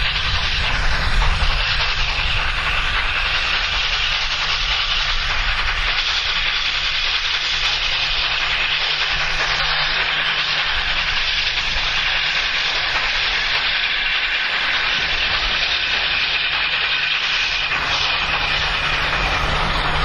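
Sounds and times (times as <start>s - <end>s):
low hum: 0.0s - 5.9s
steam hissing: 0.0s - 20.0s.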